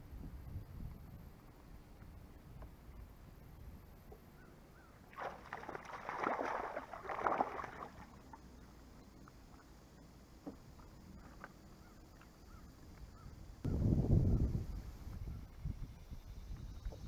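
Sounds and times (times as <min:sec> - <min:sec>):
fish splashing at surface: 0:05.1 - 0:08.4.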